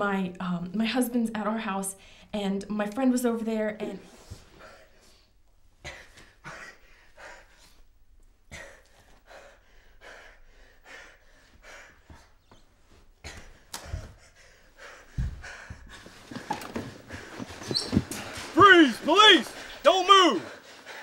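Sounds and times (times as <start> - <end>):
person breathing hard: 4.5 - 18.6
dull thumps: 15.1 - 19.7.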